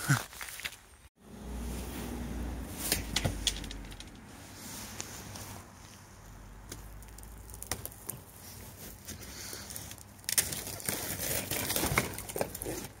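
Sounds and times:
thin ice cracking and snapping: 9.6s - 13.0s.

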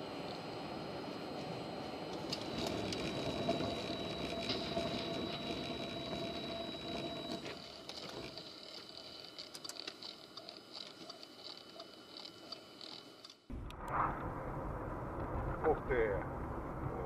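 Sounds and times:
car engine and road noise: 1.2s - 8.3s.

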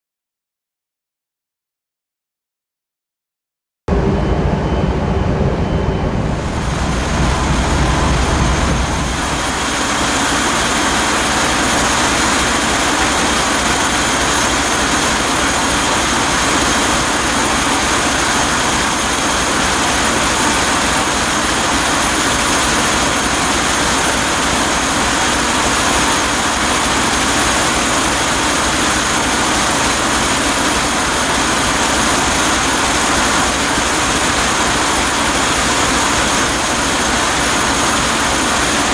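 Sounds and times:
faint high steady tones: 3.9s - 10.7s
deep exhaust rumble: 3.9s - 16.6s
engine-room din: 3.9s - 38.9s.

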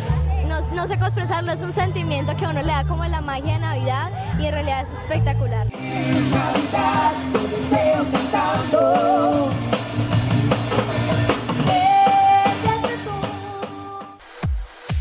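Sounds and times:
backing music with drums: 5.7s - 15.0s
girl singing into microphone: 11.7s - 14.2s.

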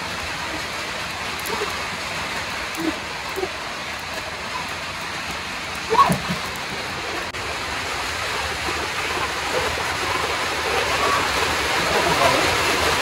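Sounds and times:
heavy rain on metal sheeting: 0.0s - 13.0s.

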